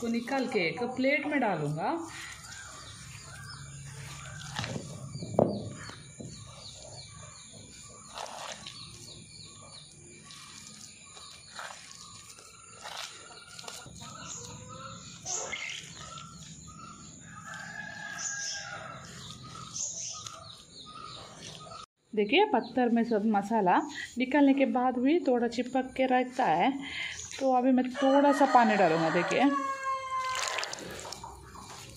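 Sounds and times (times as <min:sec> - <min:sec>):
birds chirping: 0:00.0 - 0:24.4
paste scraped from stone mortar: 0:07.7 - 0:09.4, 0:10.2 - 0:16.6.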